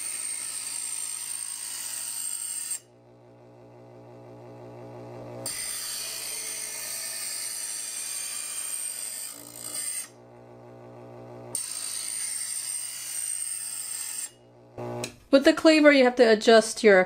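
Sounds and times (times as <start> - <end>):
blade grinding: 0.0 - 3.2, 5.0 - 15.2
knife sharpener motor humming: 0.0 - 15.2.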